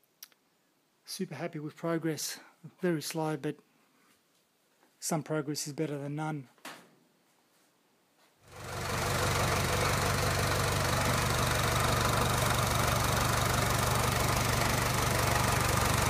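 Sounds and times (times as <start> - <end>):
diesel engine idling with knock: 8.5 - 16.0.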